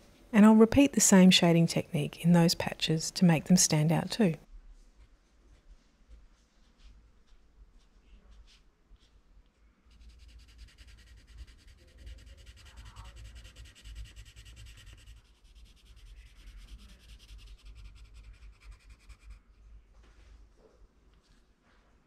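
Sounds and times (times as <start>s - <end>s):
pencil scratching on paper: 9.9s - 19.4s.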